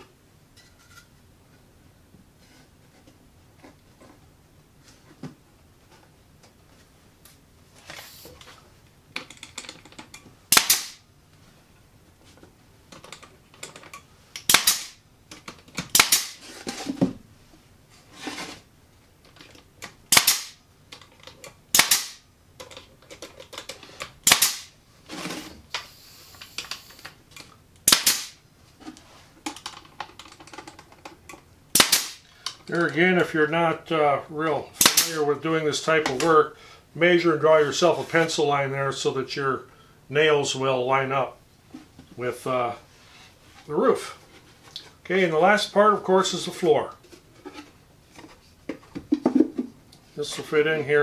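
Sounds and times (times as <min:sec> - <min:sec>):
nail gun shots: 0:10.5 - 0:11.0, 0:14.4 - 0:15.0, 0:15.9 - 0:16.4, 0:20.1 - 0:20.6, 0:21.7 - 0:22.2, 0:24.2 - 0:24.7, 0:27.8 - 0:28.4, 0:31.7 - 0:32.2, 0:34.8 - 0:35.2.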